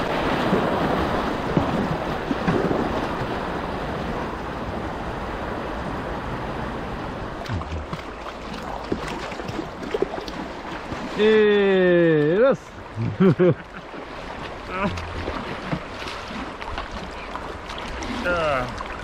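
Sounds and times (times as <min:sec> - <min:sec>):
rushing river water: 0:00.0 - 0:19.0
small splashes and knocks: 0:00.3 - 0:03.4, 0:07.4 - 0:11.3, 0:13.8 - 0:19.0.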